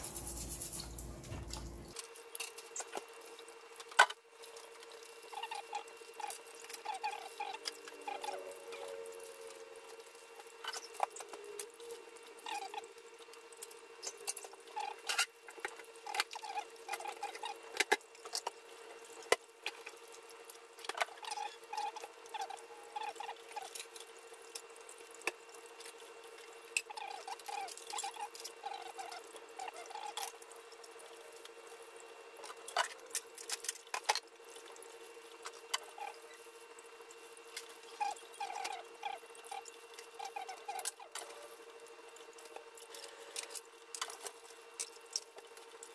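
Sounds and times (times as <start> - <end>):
scratchy scrubbing: 0.0 - 1.8
steady hum: 0.0 - 2.0.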